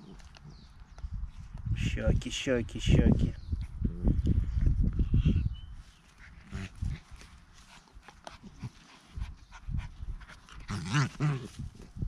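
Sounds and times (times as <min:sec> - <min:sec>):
dogs growling: 0:10.4 - 0:11.6.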